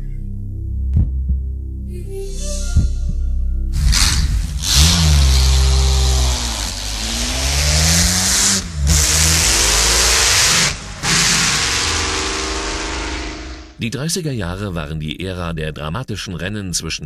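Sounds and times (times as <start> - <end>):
racing engine revving: 3.8 - 13.8.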